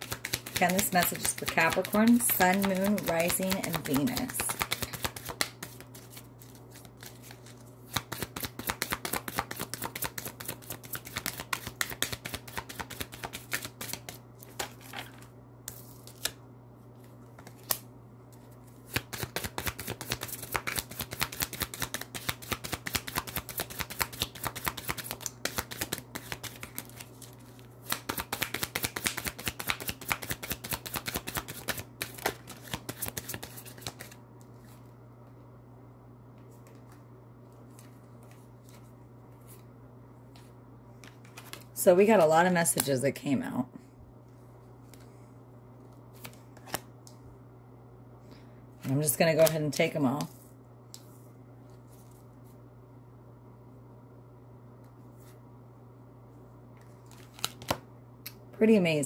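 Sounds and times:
cards being shuffled: 0:00.0 - 0:16.4, 0:17.0 - 0:34.9, 0:40.3 - 0:41.7, 0:45.8 - 0:46.9, 0:56.8 - 0:57.8
steady low hum: 0:00.0 - 0:59.0.

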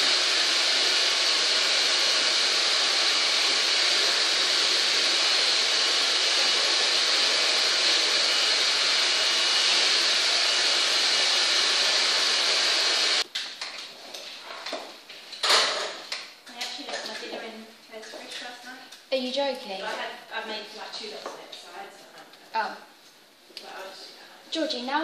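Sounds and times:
hair dryer blowing: 0:00.0 - 0:13.2.

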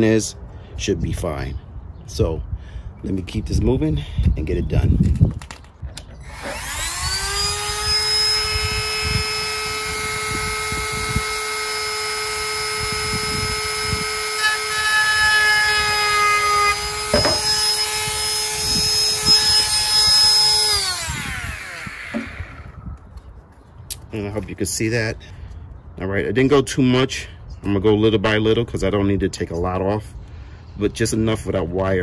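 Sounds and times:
rotary tool high whine: 0:06.1 - 0:23.0.

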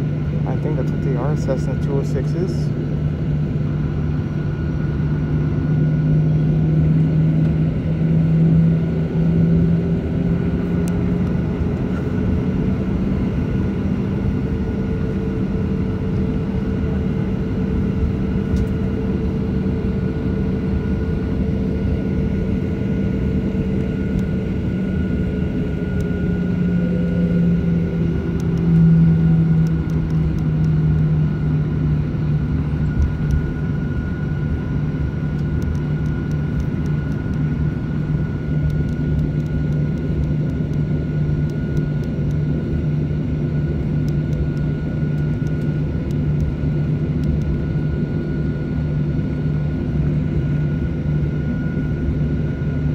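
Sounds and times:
jet engines humming near idle: 0:00.0 - 0:52.9.

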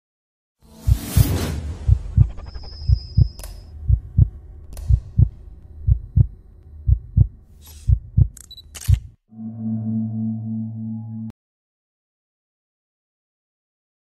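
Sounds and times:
whoosh: 0:00.6 - 0:03.7
deep heartbeat thump: 0:00.8 - 0:08.4
sharp clicks: 0:04.7 - 0:05.2, 0:07.6 - 0:09.2
thin high whine: 0:09.3 - 0:11.3.

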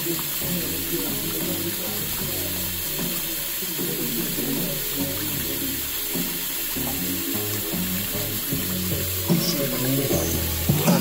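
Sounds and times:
faucet water into metal sink: 0:00.0 - 0:11.0
song from speaker: 0:00.0 - 0:11.0.

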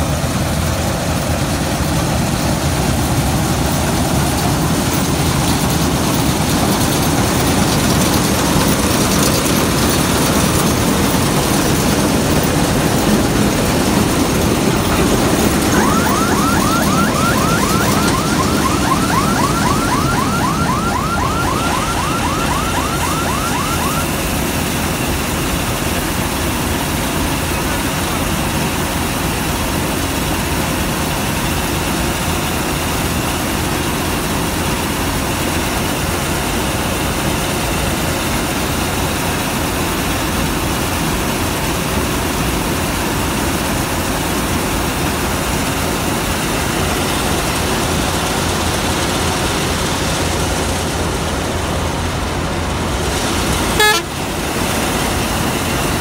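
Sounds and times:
combine harvester droning: 0:00.0 - 0:56.0
fast electronic warble: 0:02.9 - 0:24.6.

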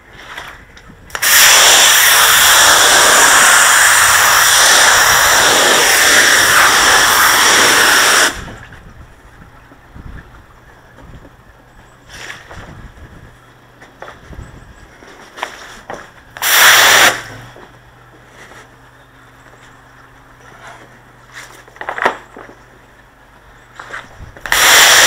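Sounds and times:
pressure washer jet hissing: 0:01.2 - 0:08.5, 0:16.4 - 0:17.3, 0:24.5 - 0:25.0.

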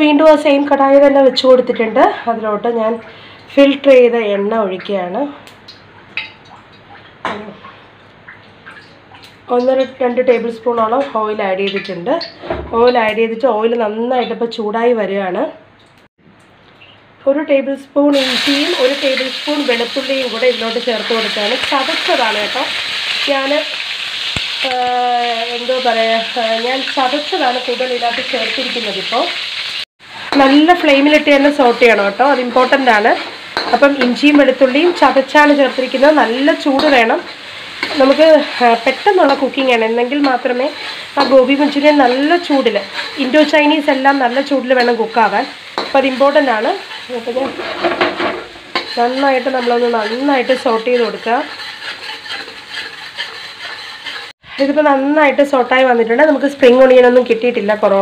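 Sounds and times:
woman talking: 0:00.0 - 0:05.4, 0:07.3 - 0:07.6, 0:09.5 - 0:15.6, 0:17.2 - 0:22.7, 0:24.6 - 0:29.3, 0:30.4 - 0:37.3, 0:37.9 - 0:47.6, 0:49.0 - 0:51.5, 0:54.5 - 0:58.0
garlic sizzling in hot oil: 0:18.1 - 0:58.0
metal spatula scraping a pan: 0:29.6 - 0:54.4.

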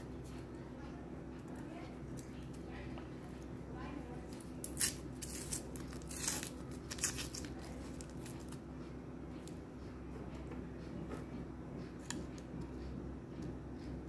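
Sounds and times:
low steady hum: 0:00.0 - 0:14.0
wrapper tearing and crinkling: 0:04.6 - 0:08.1.

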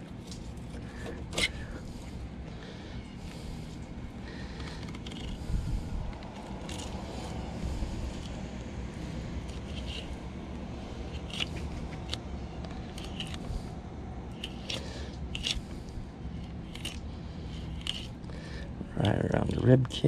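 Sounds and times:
steady low rumble: 0:00.0 - 0:20.0
knife crunching through fish: 0:11.0 - 0:12.3, 0:14.3 - 0:15.8, 0:16.4 - 0:18.2.

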